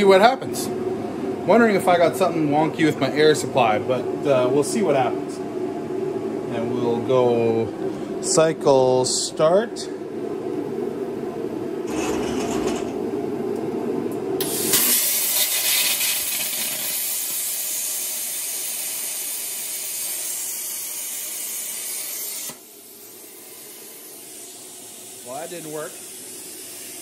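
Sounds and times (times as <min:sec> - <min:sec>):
stepper motors driving gantry: 0:11.9 - 0:13.0
plasma torch hissing: 0:14.4 - 0:27.0.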